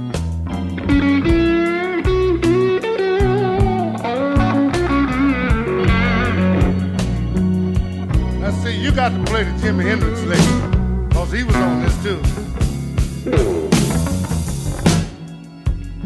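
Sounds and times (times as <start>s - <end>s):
bass: 0.0s - 16.0s
electric guitar music: 0.0s - 16.0s
steady drum beat: 7.8s - 15.9s.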